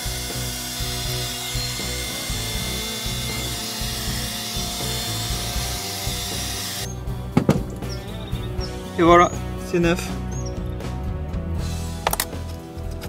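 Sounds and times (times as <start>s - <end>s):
heat gun fan blowing: 0.0s - 6.9s
background music with a beat: 0.0s - 13.0s.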